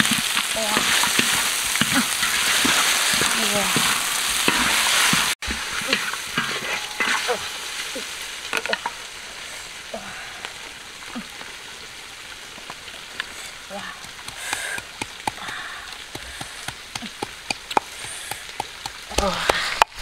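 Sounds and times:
fish frying in hot oil: 0.0s - 19.1s.

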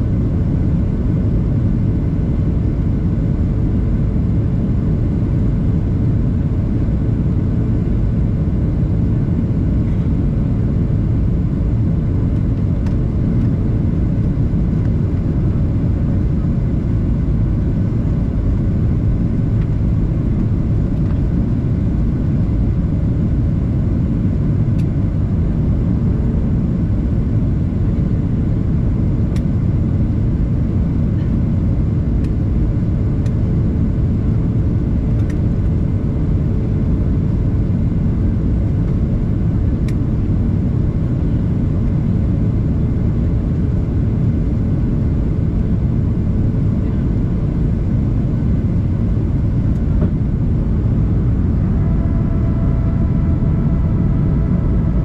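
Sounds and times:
airplane cabin engine rumble: 0.0s - 55.0s
faint whining tones: 49.2s - 55.0s.

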